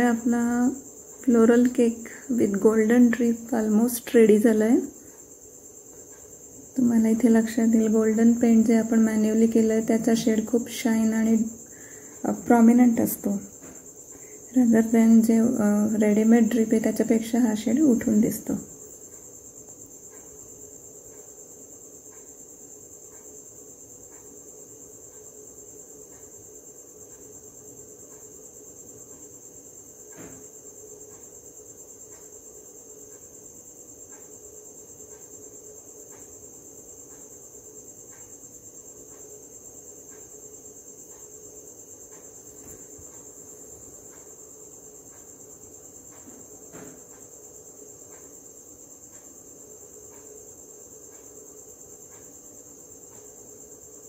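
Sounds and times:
faint regular ticks: 0.0 - 54.0
high-pitched insect trill: 0.0 - 54.0.

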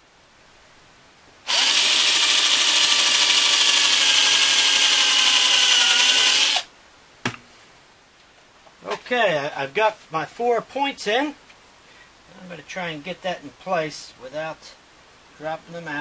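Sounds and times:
electric drill boring into wood: 1.5 - 6.7
sharp knock: 7.2 - 7.4.

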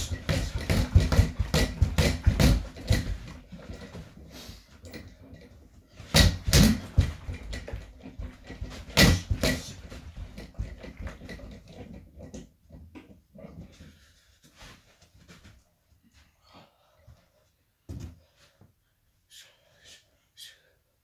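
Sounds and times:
bag and stand knocking: 0.0 - 4.0, 6.1 - 12.0
fists hitting reflex bag: 6.1 - 7.5, 8.7 - 9.8.

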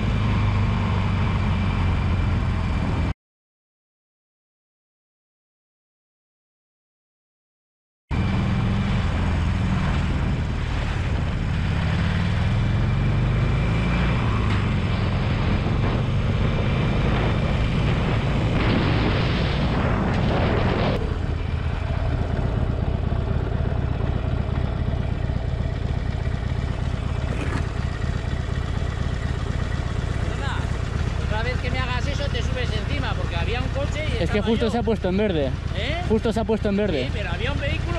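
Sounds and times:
motorcycle engine: 0.0 - 3.1, 8.1 - 37.9
wind noise rush: 14.3 - 22.8.

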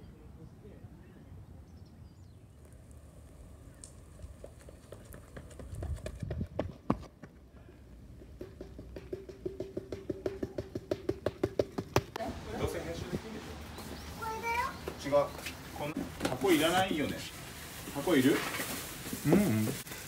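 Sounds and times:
running footsteps on pavement: 2.6 - 18.0.

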